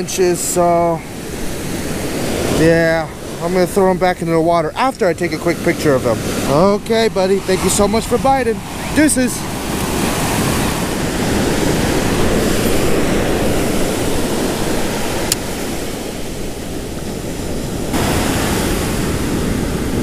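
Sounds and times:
ocean surf breaking: 0:00.0 - 0:20.0.

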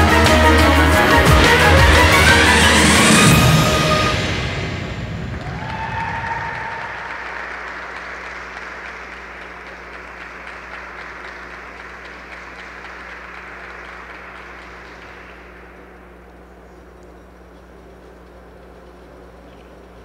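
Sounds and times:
low hum: 0:00.0 - 0:20.0
audience applauding: 0:05.2 - 0:16.0.

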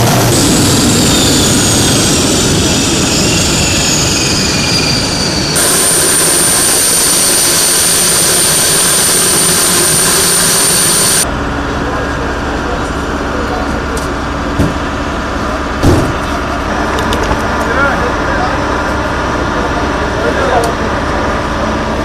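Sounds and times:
aircraft turbine whine: 0:00.0 - 0:12.4
rushing engine noise: 0:00.0 - 0:22.0.

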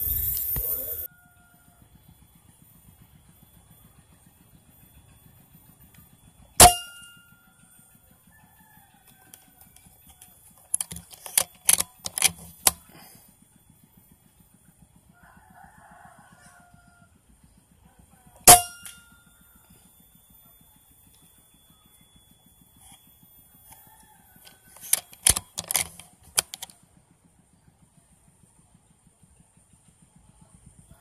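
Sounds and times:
air rifle shots: 0:06.6 - 0:07.1, 0:10.8 - 0:12.8, 0:18.5 - 0:19.0, 0:24.8 - 0:26.7
rifle handling clicks: 0:10.6 - 0:12.8, 0:24.8 - 0:26.7.

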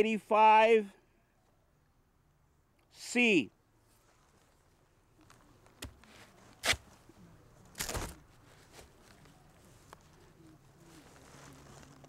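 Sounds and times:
knife crunching through taro: 0:06.6 - 0:06.9, 0:07.7 - 0:08.2.

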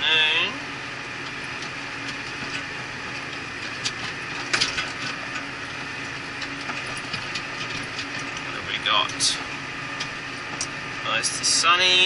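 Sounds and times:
tractor engine drone: 0:00.0 - 0:12.0
sharp clicks and rattles: 0:01.1 - 0:11.1.

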